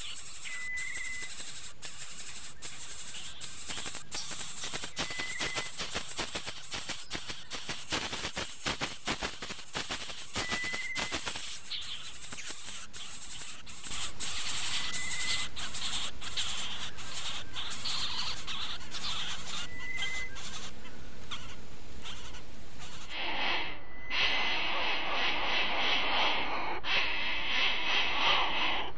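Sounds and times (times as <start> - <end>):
thin high whistle: 0.0 - 1.5, 5.0 - 5.8, 10.4 - 11.4
nestlings begging rattle and hiss: 0.0 - 28.9.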